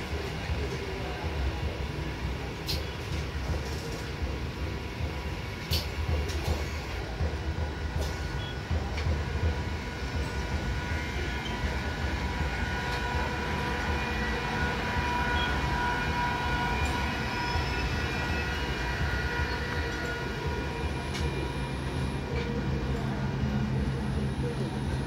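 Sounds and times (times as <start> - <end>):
high whine of train: 0.0 - 25.0
train wheels rumbling on rails: 0.0 - 25.0.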